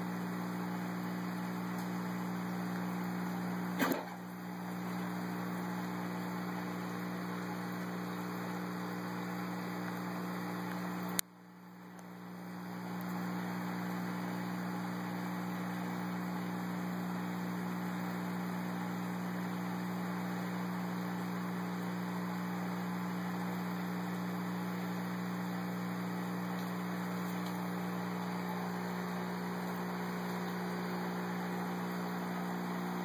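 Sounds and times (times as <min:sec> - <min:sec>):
aquarium equipment humming: 0:00.0 - 0:33.0
sharp click: 0:03.8 - 0:04.2.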